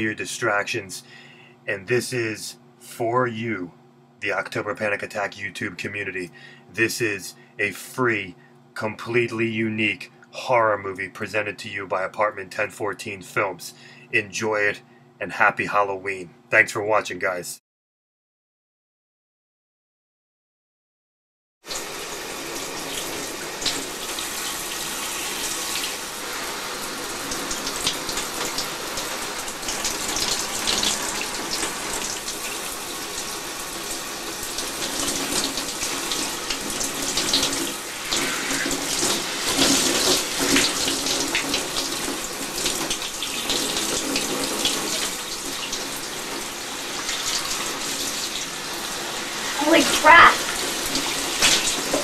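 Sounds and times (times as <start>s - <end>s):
shower water spraying on tiles: 21.7s - 52.0s.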